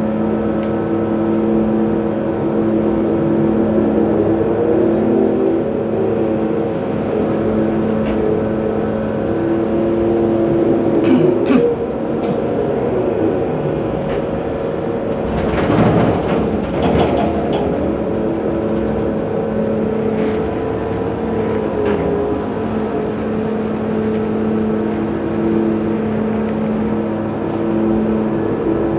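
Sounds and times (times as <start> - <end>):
excavator engine and hydraulics: 0.0 - 28.9.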